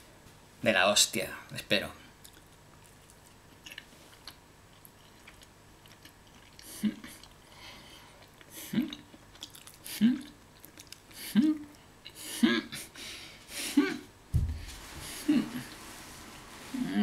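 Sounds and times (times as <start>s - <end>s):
soft wet chewing: 2.2s - 12.2s
person humming: 6.7s - 7.2s, 11.2s - 12.9s, 13.6s - 14.1s, 15.2s - 15.8s, 16.7s - 17.0s.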